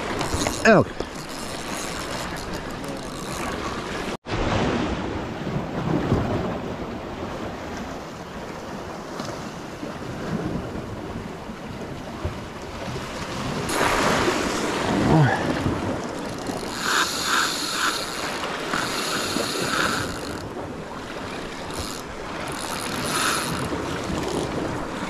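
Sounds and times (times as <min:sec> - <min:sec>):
sea waves washing against rocks: 0:00.0 - 0:25.0.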